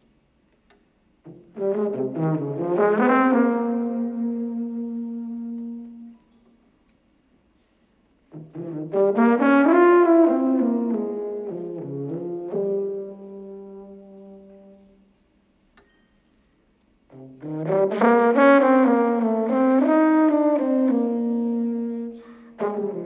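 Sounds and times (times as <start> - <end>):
solo tuba playing: 1.2 - 6.4, 8.2 - 15.2, 17.0 - 23.0.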